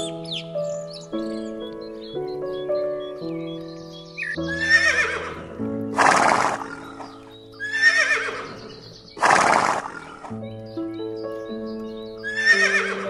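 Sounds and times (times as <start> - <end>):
background music: 0.0 - 13.0
horse whinnying: 4.5 - 5.4, 6.0 - 10.3, 12.4 - 13.0.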